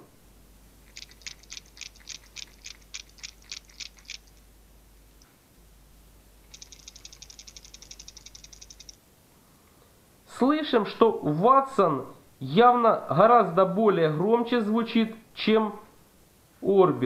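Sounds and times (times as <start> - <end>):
fishing lure rattling: 0.8 - 4.5, 6.4 - 9.0.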